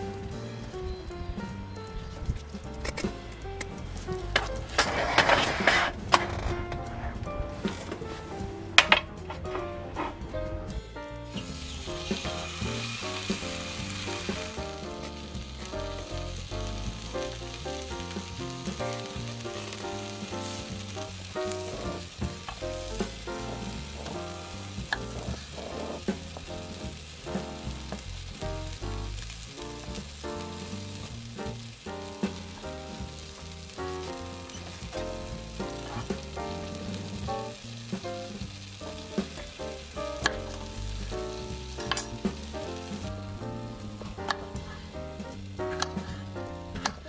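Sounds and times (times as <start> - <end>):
background music: 0.0 - 47.0
food sizzling on a griddle: 11.3 - 47.0.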